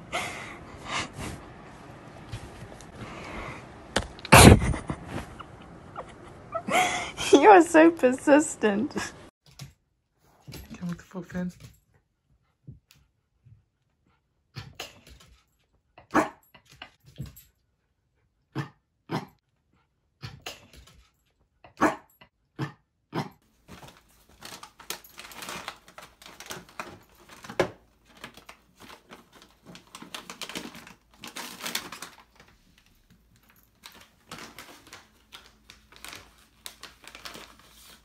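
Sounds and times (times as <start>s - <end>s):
small dog barking: 16.1s - 16.4s, 21.8s - 22.0s
plastic bags rustling: 23.5s - 38.0s.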